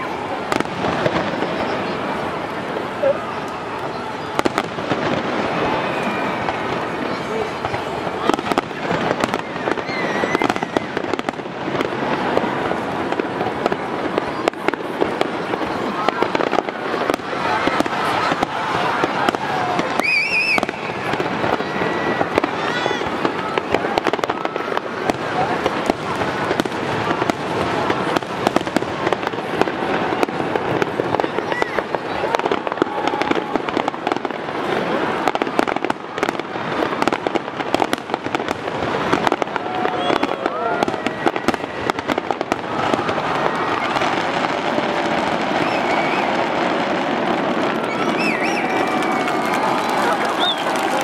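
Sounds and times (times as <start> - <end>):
fireworks bangs and crackles: 0.0 - 51.0
warbling firework whistle: 3.0 - 11.4, 16.0 - 25.1, 39.1 - 51.0.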